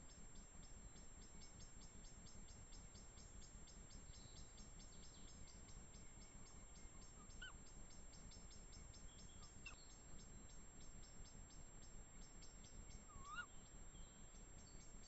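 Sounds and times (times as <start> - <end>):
insect chirping: 0.0 - 15.0
owl calls: 7.2 - 7.6, 13.0 - 13.6.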